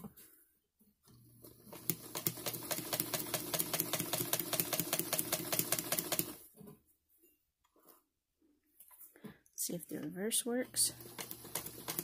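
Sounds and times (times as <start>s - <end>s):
sewing machine motor humming: 1.1s - 6.4s, 10.9s - 12.0s
sewing needle ticking: 1.7s - 6.4s, 11.0s - 12.0s.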